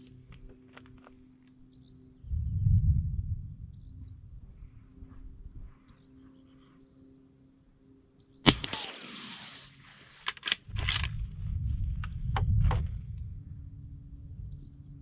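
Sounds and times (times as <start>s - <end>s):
suppressed rifle shot: 8.4s - 11.2s
rifle bolt clicking: 10.2s - 11.1s.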